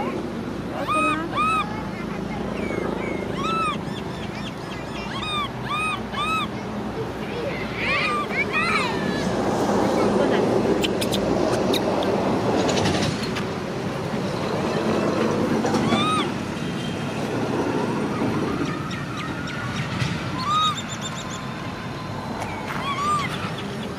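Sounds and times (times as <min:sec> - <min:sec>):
steady background noise: 0:00.0 - 0:23.9
high arched animal calls: 0:00.7 - 0:06.7, 0:07.8 - 0:09.3, 0:10.8 - 0:12.2, 0:15.7 - 0:16.4, 0:18.5 - 0:21.5, 0:22.5 - 0:23.9.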